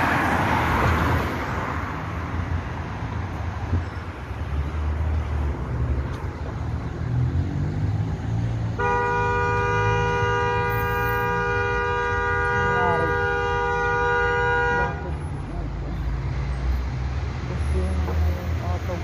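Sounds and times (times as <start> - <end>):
traffic rumbling: 0.0 - 19.0
vehicle horn long blast: 8.8 - 15.1.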